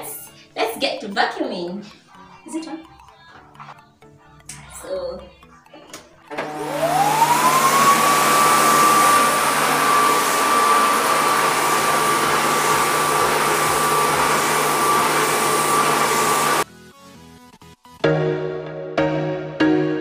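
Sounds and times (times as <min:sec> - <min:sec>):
vacuum cleaner motor whine: 0:06.3 - 0:16.7
suction rushing: 0:06.6 - 0:16.6.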